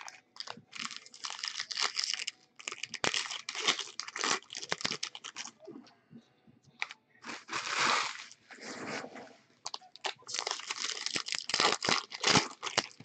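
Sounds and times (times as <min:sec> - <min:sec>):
foil wrappers crinkling and tearing: 0:00.0 - 0:05.6, 0:07.2 - 0:08.4, 0:09.7 - 0:13.0.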